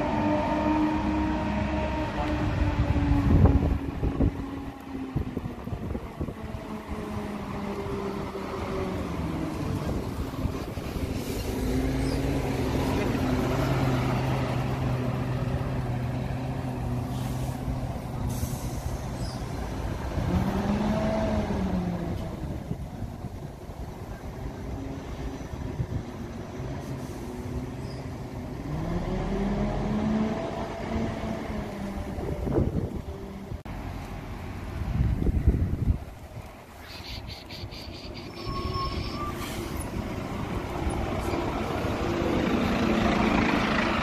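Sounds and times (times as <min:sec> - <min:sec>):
diesel bus engine running: 0:00.0 - 0:36.7, 0:37.7 - 0:44.0
air brake hisses: 0:17.1 - 0:19.4, 0:36.8 - 0:40.0.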